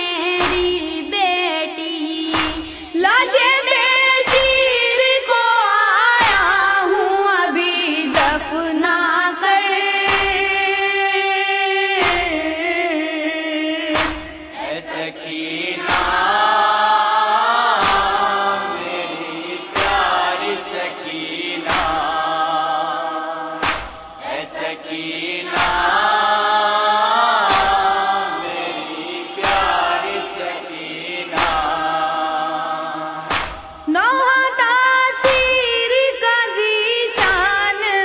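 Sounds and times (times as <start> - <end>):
young men chanting: 13.8 - 34.0
hands striking chests: 13.9 - 14.4, 17.8 - 18.3, 19.7 - 20.6, 21.6 - 22.2, 23.6 - 24.2, 31.3 - 31.8, 33.3 - 33.7.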